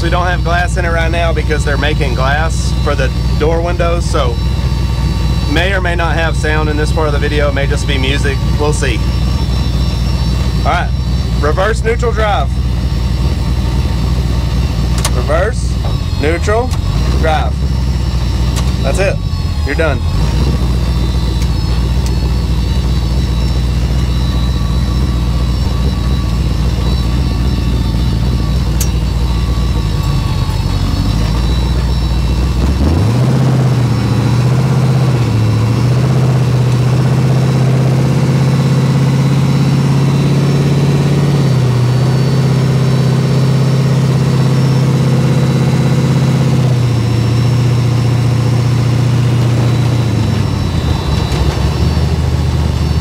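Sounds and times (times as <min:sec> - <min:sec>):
truck engine running: 0:00.0 - 0:53.0.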